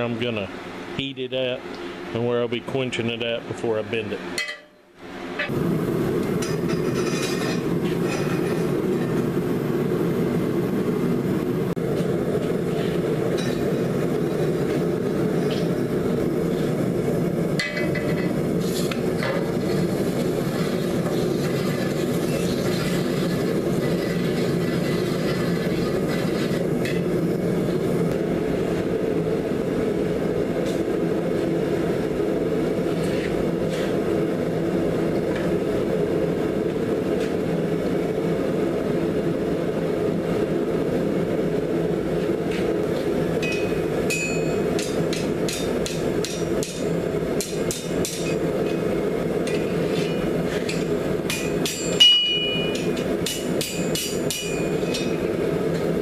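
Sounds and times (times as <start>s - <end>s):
gas forge burner rushing: 3.7s - 56.0s
hammer striking metal on anvil: 4.4s - 4.8s, 43.4s - 48.8s, 49.4s - 55.2s.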